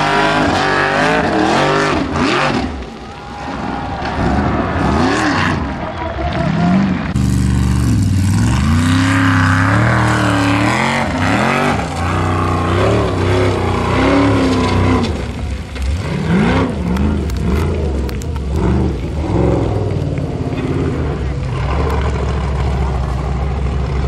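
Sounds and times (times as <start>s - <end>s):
buggy engine revving: 0.0s - 3.0s, 3.6s - 24.0s
sharp cracks: 7.0s - 23.9s.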